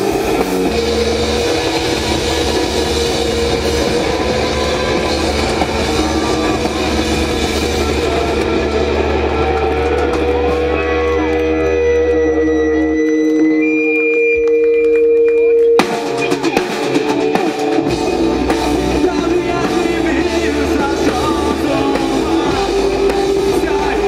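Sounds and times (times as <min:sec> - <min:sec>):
drum kit: 0:00.0 - 0:24.0
electric guitars: 0:00.0 - 0:24.0.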